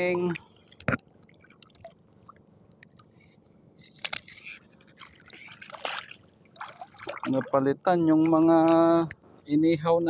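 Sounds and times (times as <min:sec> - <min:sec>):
water sloshing: 0:00.0 - 0:09.6
water splashing and dripping: 0:00.7 - 0:03.2, 0:05.0 - 0:09.2.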